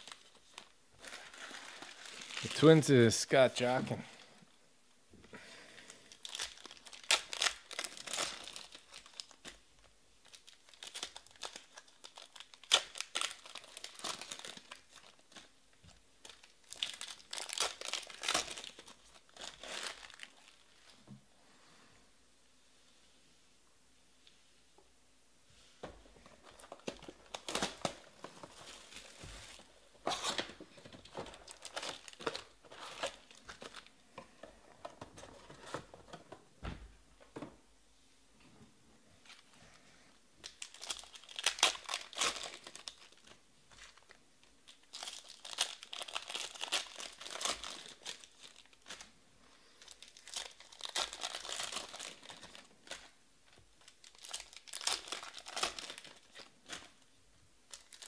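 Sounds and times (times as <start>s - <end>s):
foil wrappers crinkling and tearing: 0.0s - 3.0s, 5.8s - 15.6s, 16.2s - 20.8s, 26.4s - 33.9s, 40.4s - 57.1s, 57.7s - 58.0s.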